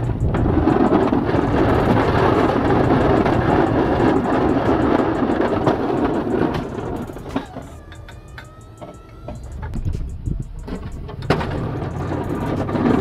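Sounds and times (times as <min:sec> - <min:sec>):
snowplow blade scraping pavement: 0:00.0 - 0:07.5, 0:11.0 - 0:13.0
truck engine running: 0:00.0 - 0:13.0.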